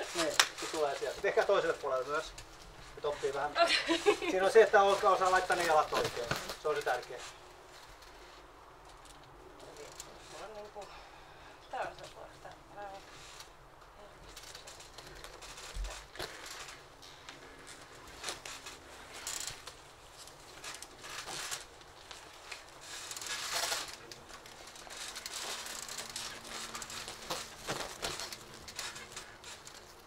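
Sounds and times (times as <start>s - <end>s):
clothing rustling and scuffing: 0.0s - 8.0s.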